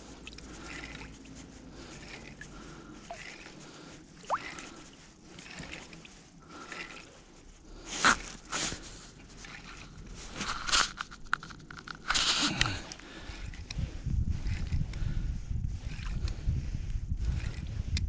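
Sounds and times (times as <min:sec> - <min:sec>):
crunching and scraping on ice: 0:00.0 - 0:13.8
winter clothing rustling: 0:00.0 - 0:17.7.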